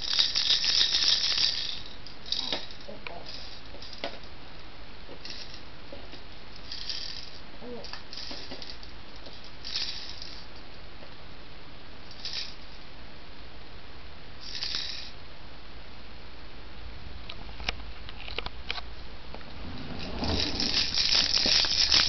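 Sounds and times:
plastic rattle shaking: 0.0s - 4.3s, 5.2s - 5.6s, 6.6s - 10.5s, 12.1s - 12.8s, 14.4s - 15.2s, 20.0s - 22.0s
plastic toys clacking: 0.0s - 4.3s, 6.6s - 10.4s, 20.0s - 22.0s.

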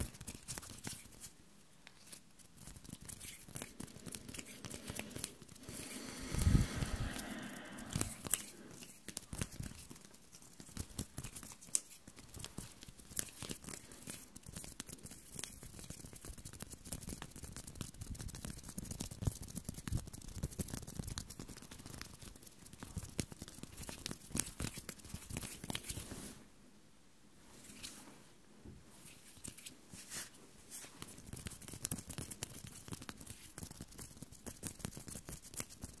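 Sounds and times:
hands rubbing and fluttering: 2.0s - 16.4s.

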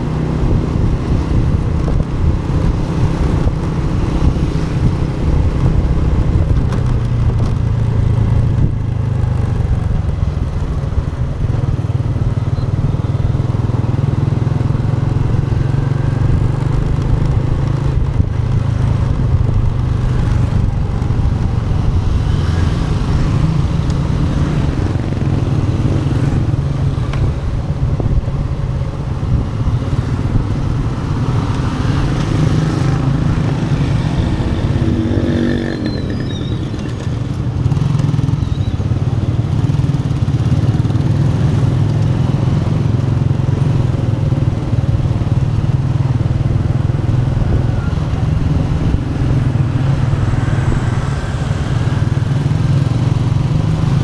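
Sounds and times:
motorcycle engine running: 0.0s - 54.0s
wind and road noise: 0.0s - 54.0s.

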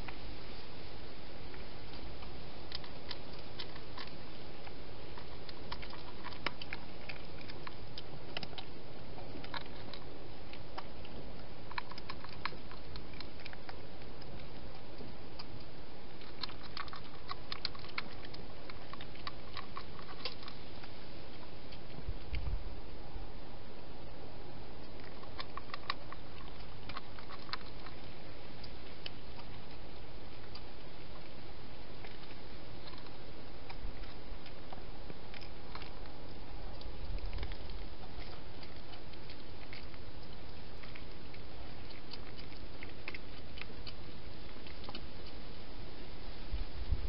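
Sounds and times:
steady hiss: 0.0s - 5.6s
hedgehog eating crunching: 0.0s - 47.0s.

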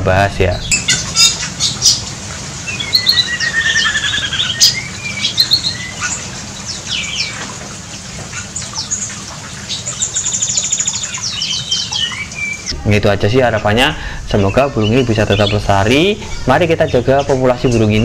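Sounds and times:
songbirds calling: 0.2s - 18.0s
bird chirps and whistles: 2.7s - 6.2s.

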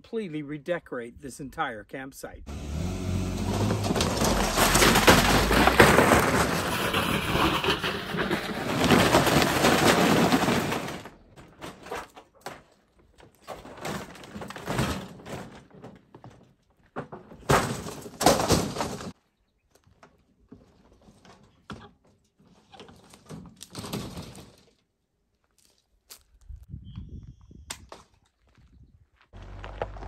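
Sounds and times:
metal refrigerator scraping on gravel: 2.5s - 12.0s.

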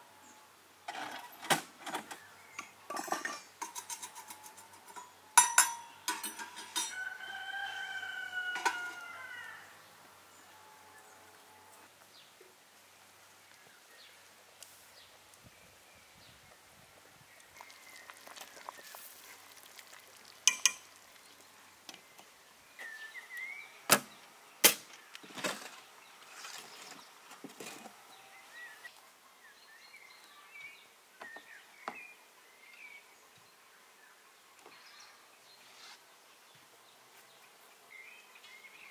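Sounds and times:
faint outdoor ambience: 0.0s - 38.9s
metal cookware clanking: 2.9s - 7.0s, 20.5s - 20.9s
birds chirping: 13.2s - 19.2s.

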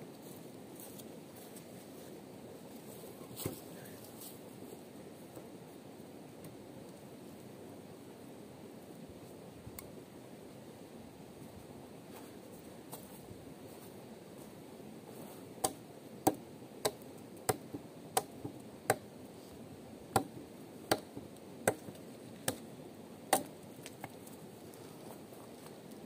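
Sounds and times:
sharp chopping strikes: 15.6s - 19.0s, 20.1s - 22.6s, 23.3s - 23.5s.

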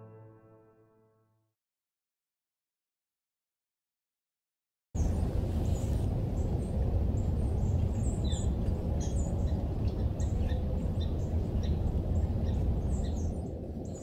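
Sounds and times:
small birds chirping: 5.0s - 14.0s
steady low rumble: 5.0s - 14.0s.

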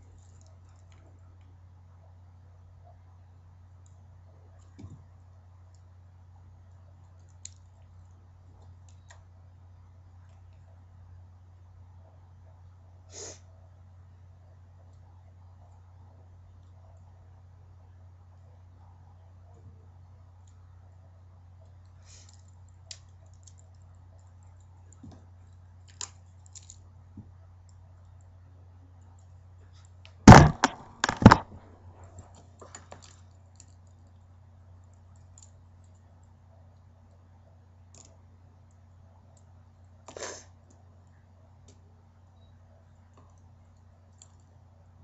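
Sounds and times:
steady low hum: 0.0s - 45.0s
loud knocks: 30.3s - 31.6s.

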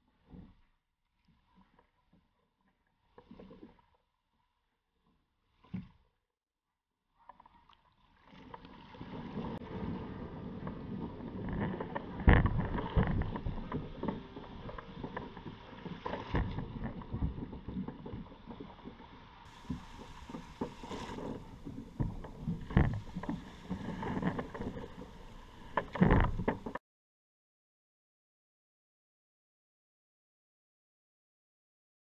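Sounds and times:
water splashing against kayak hull: 1.2s - 4.1s, 7.3s - 26.8s.

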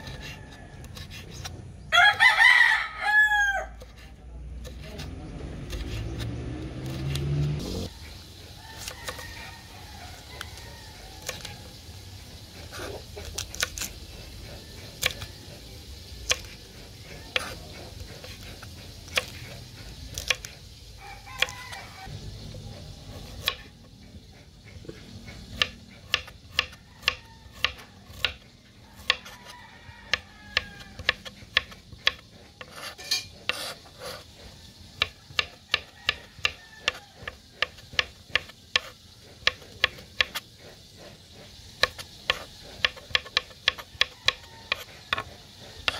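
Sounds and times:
rooster crowing: 0.0s - 1.2s, 1.9s - 3.8s, 8.5s - 11.8s, 21.0s - 22.2s, 26.6s - 31.4s, 35.2s - 37.8s, 43.7s - 45.9s
knife chopping on wooden board: 3.8s - 7.8s, 12.6s - 20.6s, 23.1s - 23.7s, 24.7s - 29.4s, 30.1s - 45.9s.

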